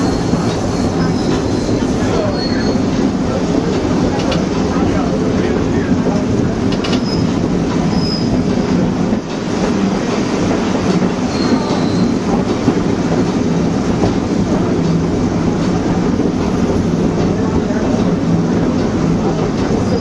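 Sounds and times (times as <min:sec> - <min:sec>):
faint wheel squeals: 0:00.0 - 0:02.9, 0:11.2 - 0:12.2
train wheels rumbling on rails: 0:00.0 - 0:20.0.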